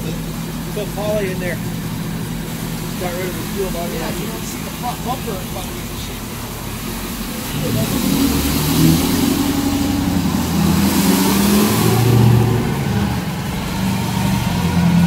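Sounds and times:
truck engine revving: 0.0s - 15.0s.

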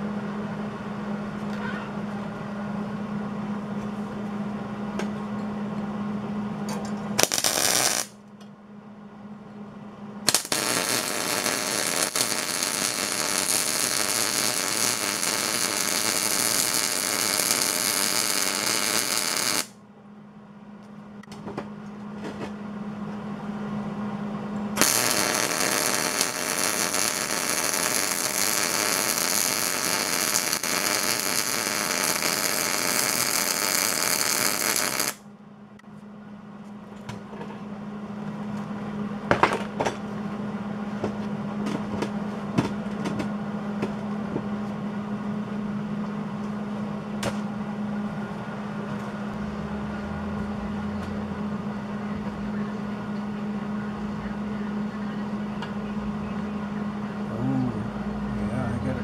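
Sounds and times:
steady low hum: 0.0s - 59.0s
welding arc crackling: 7.2s - 8.2s, 10.3s - 19.8s, 24.8s - 35.2s.

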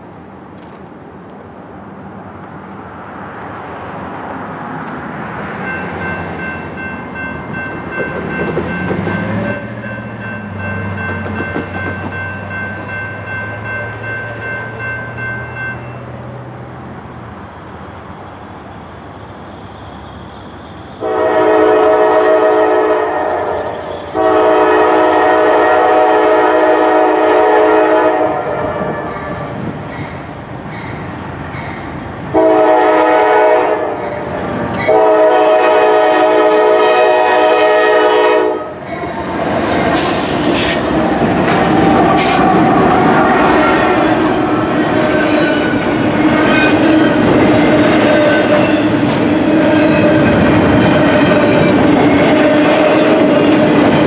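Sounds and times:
diesel locomotive rumble: 0.0s - 54.0s
train air horn blasts: 21.0s - 29.6s, 32.3s - 34.2s, 34.8s - 39.1s, 41.9s - 51.6s.

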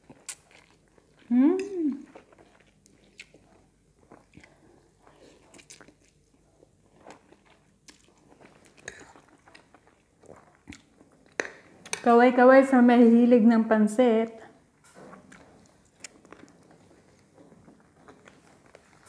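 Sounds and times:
person chewing: 0.0s - 12.0s, 15.1s - 19.0s.

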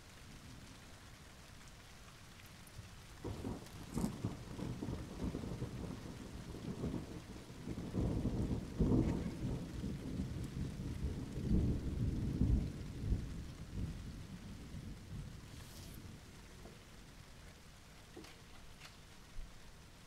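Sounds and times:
rolling thunder: 3.2s - 17.1s.

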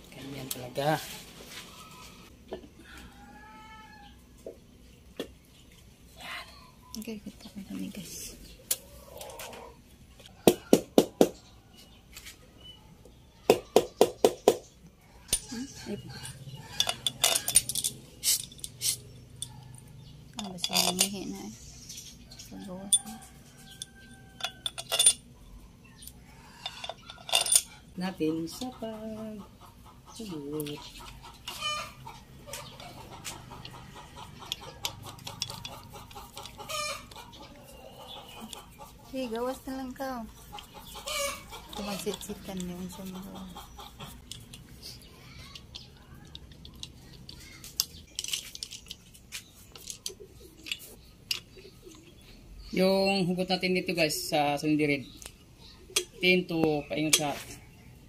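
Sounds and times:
chickens clucking: 0.3s - 18.2s, 25.2s - 58.0s
metal tool tapping and clinking: 16.3s - 21.2s, 22.9s - 25.3s, 26.7s - 27.7s, 34.4s - 37.2s.

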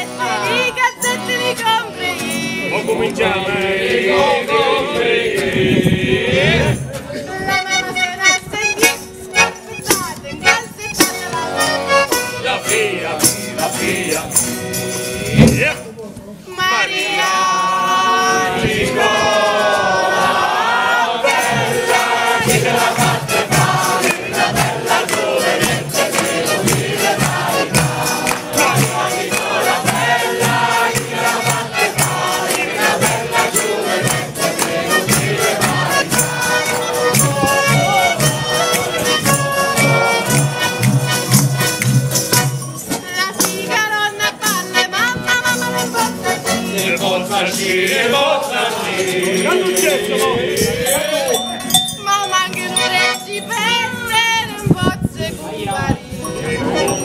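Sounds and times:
jingling tambourines: 0.0s - 3.0s, 7.6s - 15.9s, 18.9s - 57.0s
button accordion tune: 0.0s - 16.0s, 17.2s - 50.8s, 51.4s - 55.0s
strummed guitars: 0.0s - 16.0s, 17.0s - 57.0s
voices singing: 0.0s - 57.0s
beaten drum: 21.4s - 43.1s.

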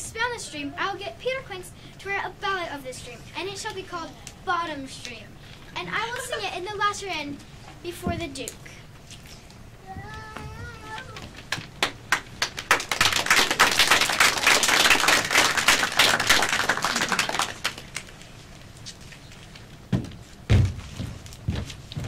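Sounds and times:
audience applause: 11.5s - 18.1s
heavy thuds: 19.9s - 22.0s.

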